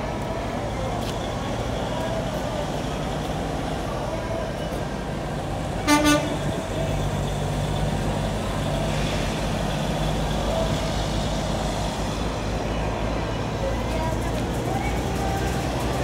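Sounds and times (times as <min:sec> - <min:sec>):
diesel truck engine running: 0:00.0 - 0:16.0
truck horn toots: 0:05.8 - 0:06.6.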